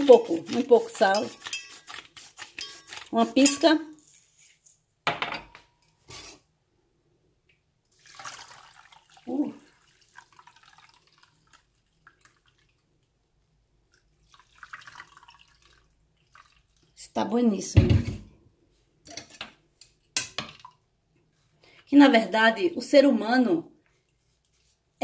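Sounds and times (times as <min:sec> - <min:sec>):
metal kitchenware clanking: 0:00.0 - 0:06.3
liquid trickling through metal sieve: 0:07.9 - 0:12.9, 0:13.9 - 0:17.0
liquid pouring from glass jug: 0:07.9 - 0:13.0, 0:13.9 - 0:17.0.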